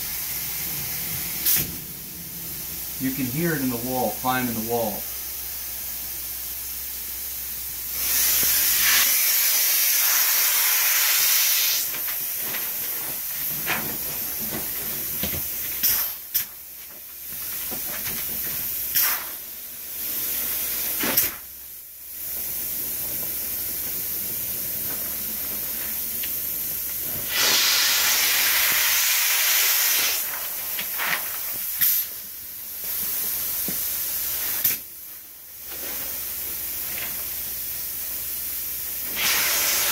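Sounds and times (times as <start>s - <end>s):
steady background hiss: 0.0s - 39.9s
spray foam gun hissing: 6.7s - 16.7s, 17.3s - 21.4s, 22.2s - 34.9s, 37.4s - 39.9s.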